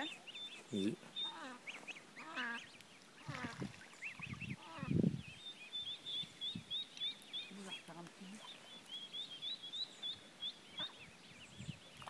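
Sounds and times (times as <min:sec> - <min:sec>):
ducks quacking: 0:00.0 - 0:05.0
high peeping calls: 0:00.0 - 0:12.0
geese honking: 0:01.1 - 0:05.0.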